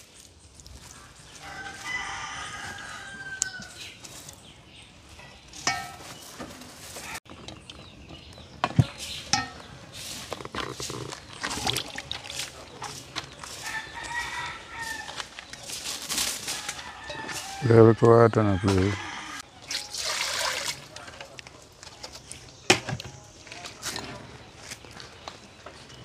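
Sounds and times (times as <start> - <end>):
rooster crowing: 1.4 - 3.8, 13.5 - 15.3, 16.5 - 19.5
chickens clucking: 5.2 - 19.5.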